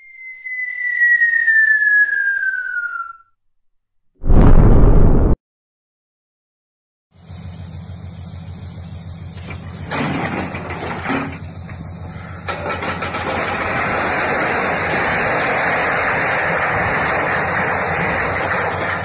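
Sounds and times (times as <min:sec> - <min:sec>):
diesel locomotive engine running: 0:07.1 - 0:19.0
railcar unloading rushing noise: 0:07.2 - 0:19.0.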